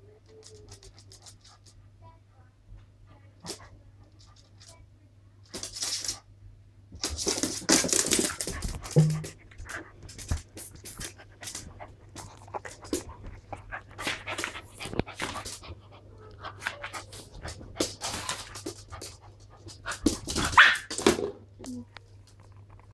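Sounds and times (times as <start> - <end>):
dogs scuffling: 6.9 - 15.7
dogs panting: 8.2 - 20.4.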